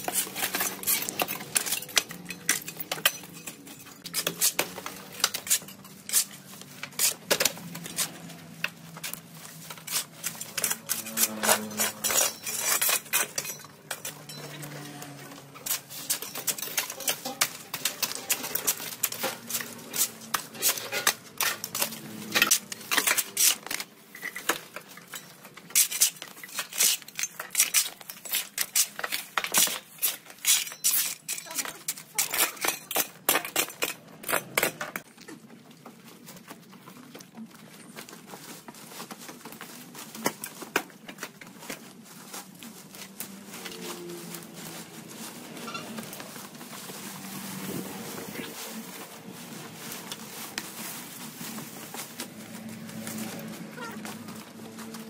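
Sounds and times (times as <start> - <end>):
hard objects clinking and knocking: 0.0 - 35.5.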